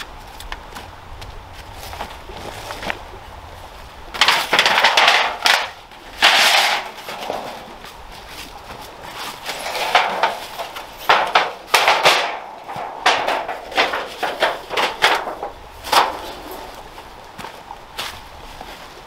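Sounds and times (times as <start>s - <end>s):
thin metal sheet crinkling: 4.2s - 17.0s.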